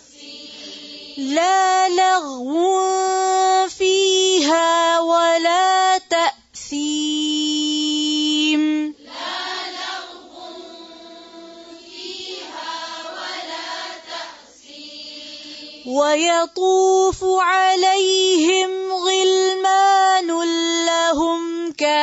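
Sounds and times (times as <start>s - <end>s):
woman reciting in long note: 0.0s - 22.0s
group of voices chanting: 9.0s - 15.9s.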